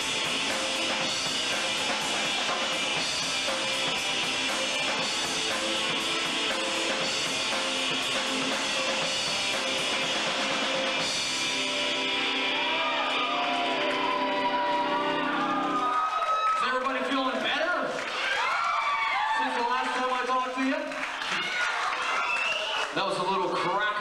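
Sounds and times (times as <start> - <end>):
drum kit with cymbals: 0.0 - 12.2
rock band playing live: 0.0 - 15.8
electric guitar: 0.0 - 16.2.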